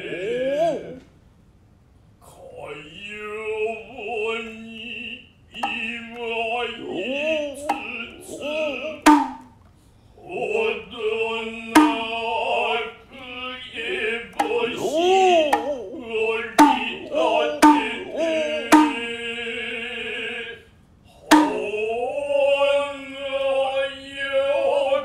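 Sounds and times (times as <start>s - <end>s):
person chanting: 0.0s - 1.0s, 2.4s - 9.1s, 10.2s - 25.0s
shoulder drum strikes: 5.6s - 6.0s, 7.6s - 8.4s, 9.0s - 9.6s, 11.8s - 12.4s, 14.4s - 15.9s, 16.5s - 19.2s, 21.3s - 21.8s.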